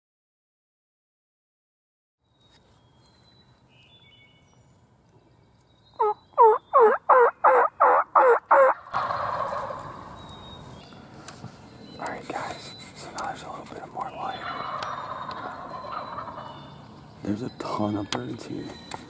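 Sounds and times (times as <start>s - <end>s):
turkey call yelps: 6.0s - 10.2s, 14.2s - 16.8s
turkeys gobbling: 6.0s - 10.4s, 14.0s - 17.2s.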